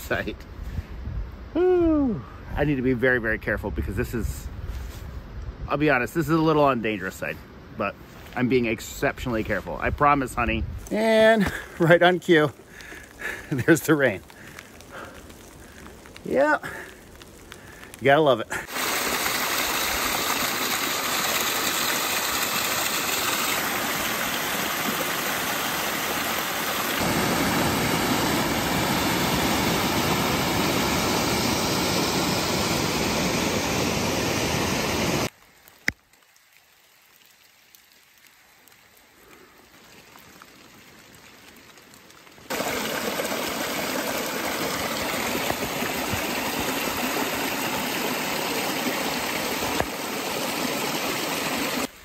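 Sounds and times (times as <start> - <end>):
water splashing over rocks: 17.2 - 33.3, 39.8 - 52.0.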